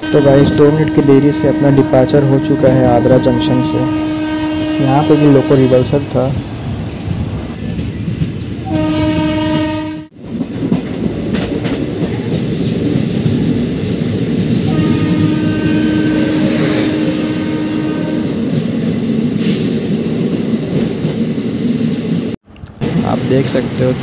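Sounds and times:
train horn blowing: 0:00.0 - 0:06.3, 0:08.7 - 0:10.2, 0:14.6 - 0:18.6
train rumble and wheel clatter: 0:00.0 - 0:24.0.

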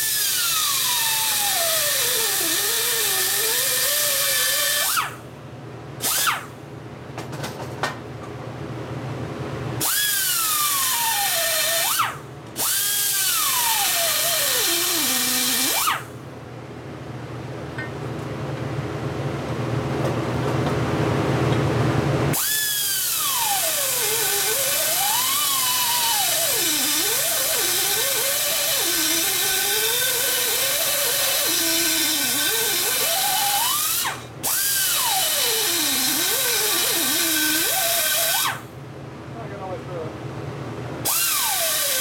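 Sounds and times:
die grinder cutting metal: 0:00.0 - 0:05.1, 0:09.9 - 0:16.0, 0:22.4 - 0:38.6, 0:41.1 - 0:42.0.

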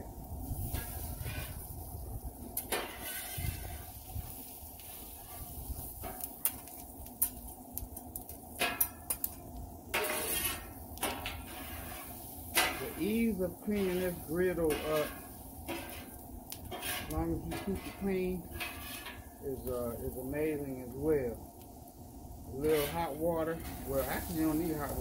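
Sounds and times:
metal spatulas scraping on griddle: 0:00.6 - 0:01.7, 0:02.6 - 0:07.4, 0:08.6 - 0:09.3, 0:09.9 - 0:19.4, 0:22.6 - 0:25.0.

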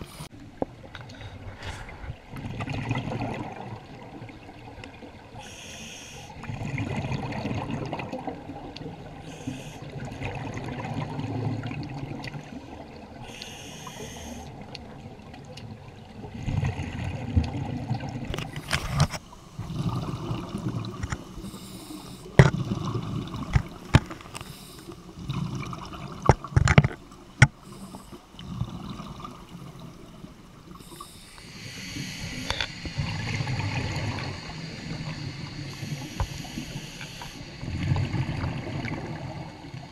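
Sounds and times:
underwater exhaled bubbles: 0:00.0 - 0:39.9
hissing inhalations: 0:05.4 - 0:06.3, 0:09.2 - 0:09.8, 0:13.2 - 0:14.5, 0:21.3 - 0:22.4, 0:24.3 - 0:25.0, 0:27.6 - 0:28.3, 0:30.8 - 0:32.8, 0:35.7 - 0:37.5.

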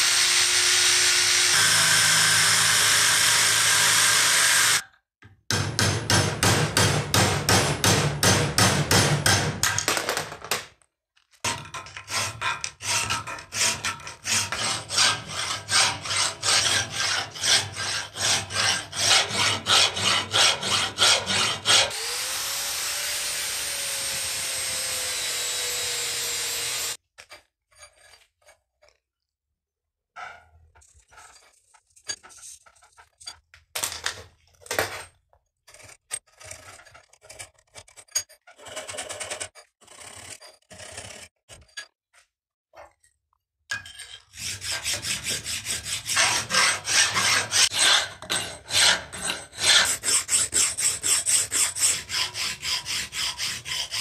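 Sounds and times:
angle grinder cutting steel: 0:00.0 - 0:04.8, 0:13.7 - 0:27.0, 0:44.4 - 0:54.0
file strokes on metal: 0:12.0 - 0:21.9, 0:44.2 - 0:54.0.

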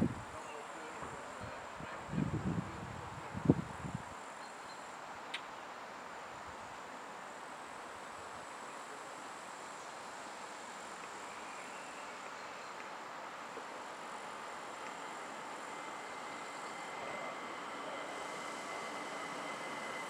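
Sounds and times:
crickets chirping: 0:00.0 - 0:20.0
faint outdoor hiss: 0:00.0 - 0:20.0.

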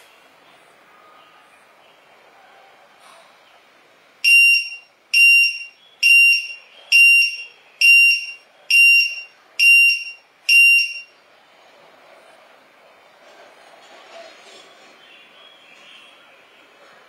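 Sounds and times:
high-pitched buzzer beeps: 0:04.2 - 0:11.1.

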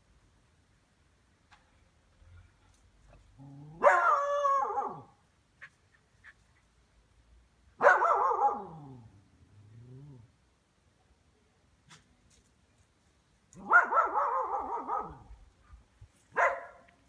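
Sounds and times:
dog barking: 0:03.8 - 0:05.2, 0:07.8 - 0:08.9, 0:13.6 - 0:15.4, 0:16.3 - 0:16.9.

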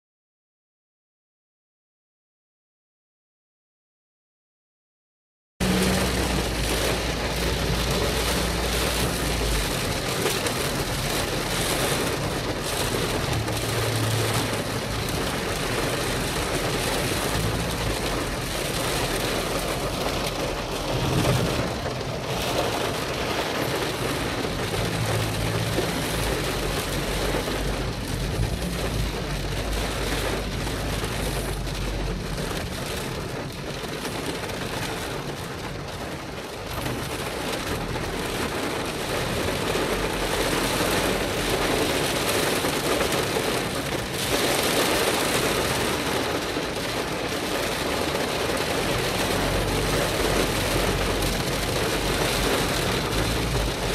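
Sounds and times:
car driving on wet road: 0:05.6 - 0:53.9
heavy rain on car windshield: 0:05.6 - 0:53.9
low rumble: 0:17.8 - 0:23.8.

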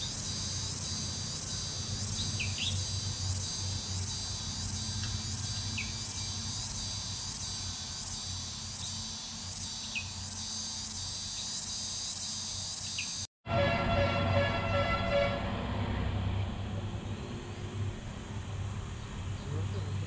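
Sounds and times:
insect chirps: 0:00.0 - 0:13.3
insect chorus pulsing: 0:00.0 - 0:13.3.

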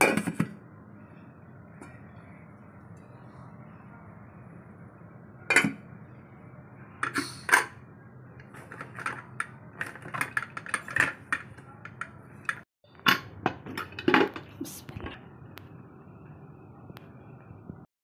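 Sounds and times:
steady low hum: 0:00.0 - 0:17.9
metal lid clanking and clicking: 0:05.5 - 0:05.8, 0:08.6 - 0:14.5.

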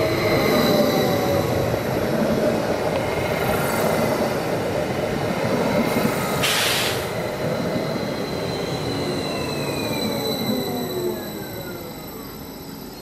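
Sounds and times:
high train whine: 0:00.0 - 0:13.0
train wheels rumbling on rails: 0:00.0 - 0:13.0
short hiss: 0:06.4 - 0:07.1.

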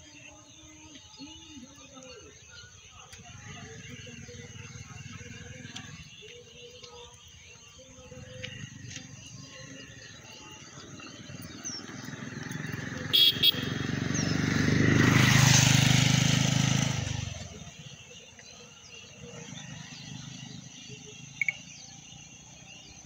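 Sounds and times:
vehicle passing by: 0:10.7 - 0:18.1, 0:19.0 - 0:23.0
car horn beeps: 0:13.1 - 0:13.9.

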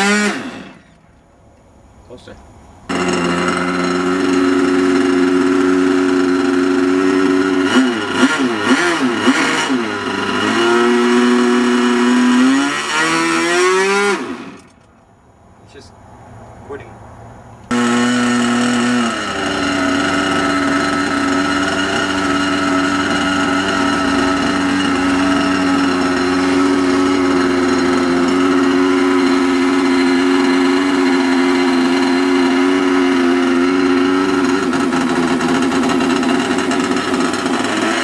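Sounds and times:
model plane engine high-pitched drone: 0:02.9 - 0:14.8, 0:17.7 - 0:38.0.

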